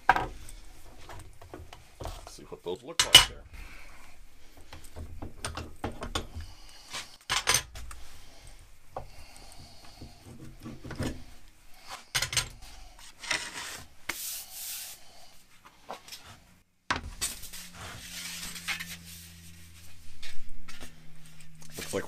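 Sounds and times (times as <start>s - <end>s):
sheet metal scraping on wood: 10.0s - 14.4s, 17.2s - 20.8s.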